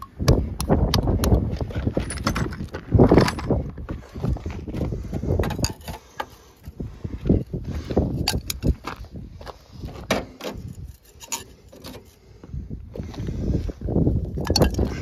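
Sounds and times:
plastic and metal clacks: 5.4s - 6.4s.

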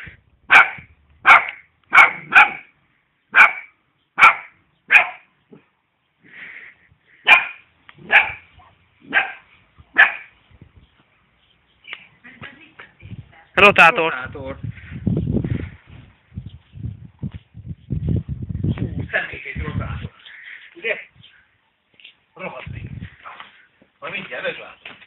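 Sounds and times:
puppy barking: 0.5s - 2.7s, 3.3s - 5.7s, 7.2s - 10.4s.

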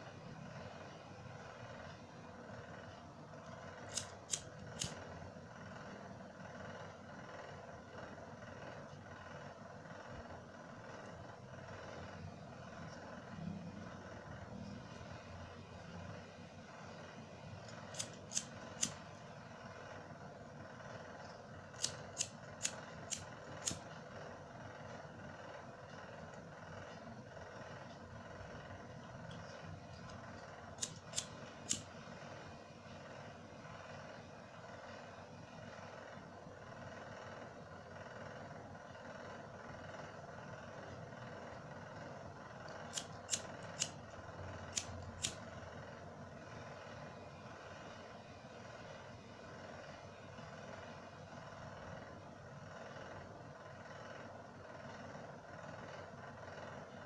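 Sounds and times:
faint background hum: 0.0s - 57.0s
sharp clicks: 3.8s - 5.1s, 17.7s - 19.0s, 21.7s - 23.9s, 30.8s - 31.9s
cigarette lighter clicking: 17.9s - 19.0s, 21.8s - 23.8s, 42.9s - 44.0s, 44.7s - 45.4s.

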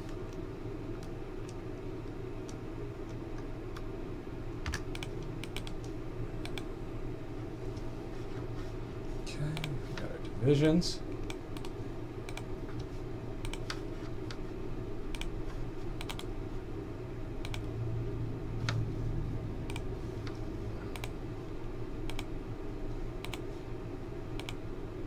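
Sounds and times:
low room hum: 0.0s - 25.0s
computer mouse clicking: 4.6s - 6.7s, 9.6s - 9.8s, 11.1s - 14.4s, 15.1s - 15.3s, 16.0s - 16.3s, 17.4s - 17.7s, 19.6s - 21.2s, 22.0s - 22.3s, 23.2s - 23.5s, 24.4s - 24.6s.

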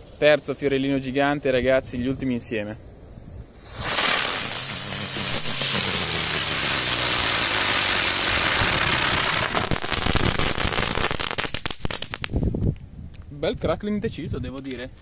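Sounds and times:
firework hissing sparks: 3.0s - 12.4s
firework crackling: 3.4s - 12.4s.

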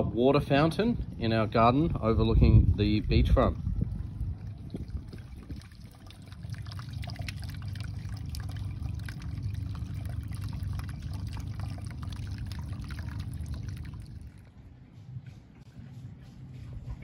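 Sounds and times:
fountain water trickling: 2.8s - 14.6s.

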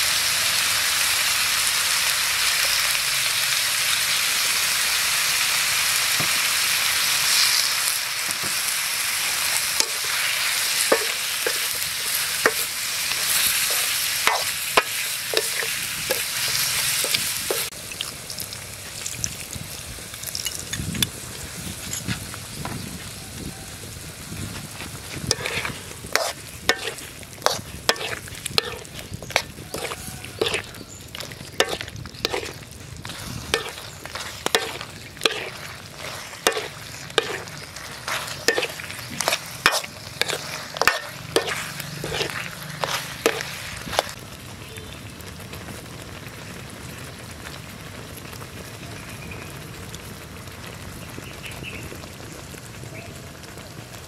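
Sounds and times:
food sizzling in a wok: 0.0s - 54.0s
metal ladle scraping a wok: 8.5s - 17.7s, 25.1s - 44.2s.

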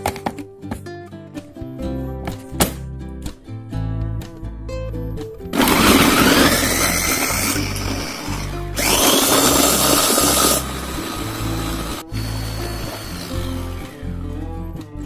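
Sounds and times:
blender motor whine: 5.5s - 14.2s.

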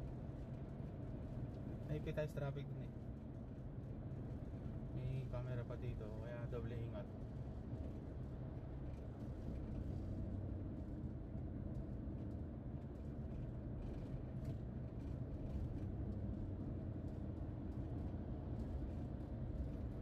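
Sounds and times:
car cruising rumble inside cabin: 0.0s - 20.0s.

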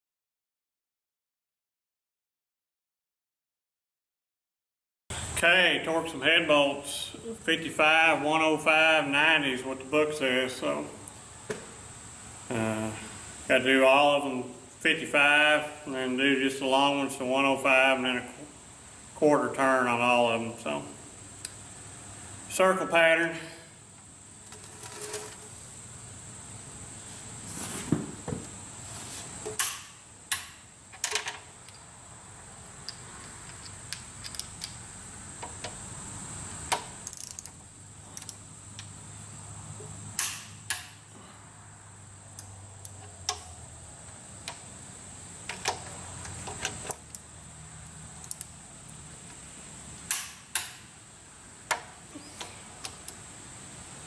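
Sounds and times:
torque wrench ratcheting clicks: 37.0s - 37.6s.

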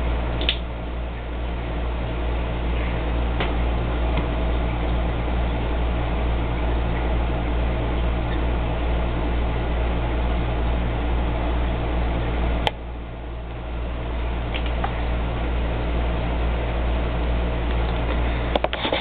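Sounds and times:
low mechanical hum with hiss: 0.0s - 19.0s
sharp click: 0.4s - 0.6s.

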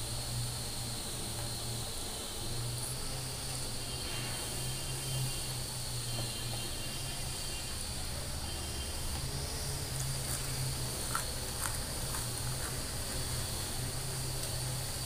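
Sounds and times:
person chewing: 10.0s - 12.8s.

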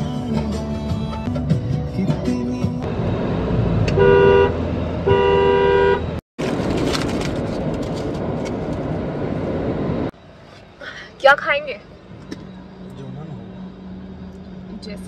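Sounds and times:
car engine and road noise: 0.0s - 15.0s
car horn honking: 3.9s - 6.2s.

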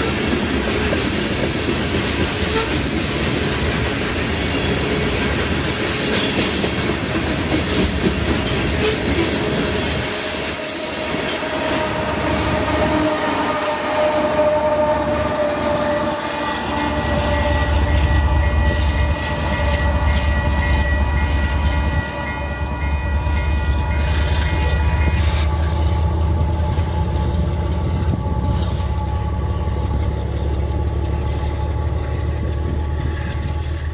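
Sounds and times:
locomotive rumbling past: 0.0s - 33.9s
railroad crossing bell ringing: 6.8s - 33.9s.

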